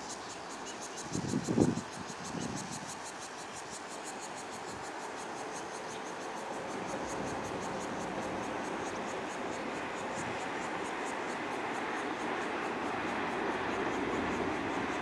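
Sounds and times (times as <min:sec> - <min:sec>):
insects chirping: 0:00.0 - 0:15.0
distant train rumble: 0:04.0 - 0:15.0.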